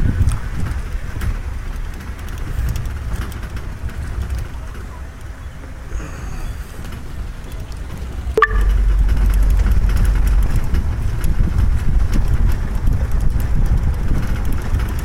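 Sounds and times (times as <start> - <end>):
light rattles and ticks: 0.0 - 5.9, 6.8 - 15.0
engine and tyre rumble: 0.0 - 15.0
wind on microphone: 8.6 - 15.0.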